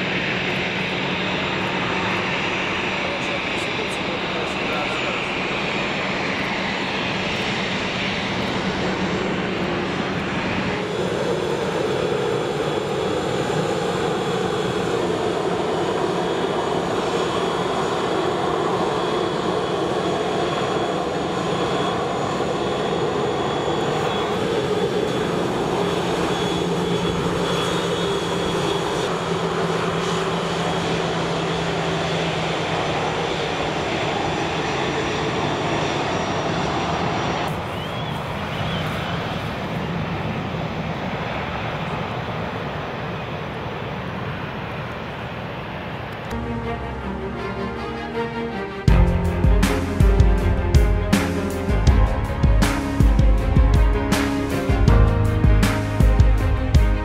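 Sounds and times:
jet engine whine: 0.0 - 57.0.

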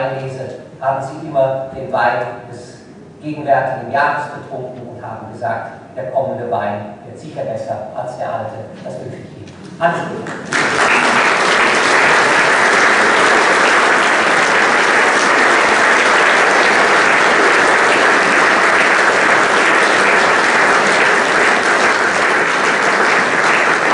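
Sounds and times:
audience applauding: 10.2 - 23.9.

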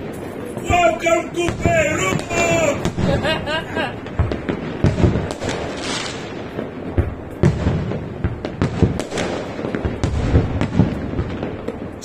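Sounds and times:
firework shells bursting: 0.0 - 12.0
firework hiss: 4.6 - 6.6.

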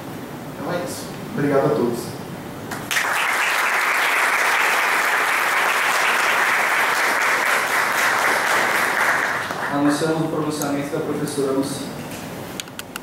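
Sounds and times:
audience applauding: 2.7 - 10.3.

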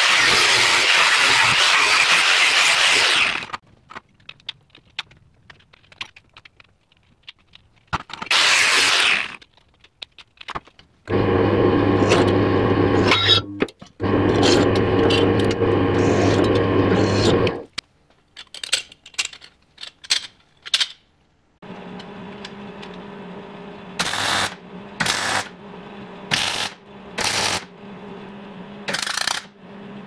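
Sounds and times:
angle grinder cutting sheet metal: 0.0 - 3.6, 8.3 - 9.4, 11.1 - 17.7, 23.9 - 25.6
handling clicks and knocks: 3.6 - 8.3, 17.7 - 21.2
drill press motor hum: 11.1 - 17.7, 21.6 - 30.0.

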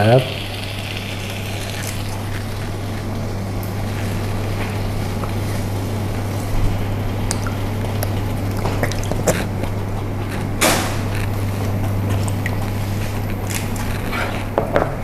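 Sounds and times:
pan hissing on hob: 0.0 - 5.5.

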